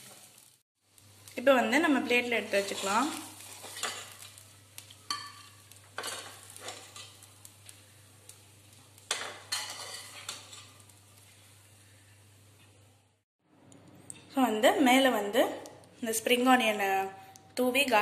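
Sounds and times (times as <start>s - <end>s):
metal spatula scraping steel pan: 2.4s - 4.3s, 9.1s - 10.8s.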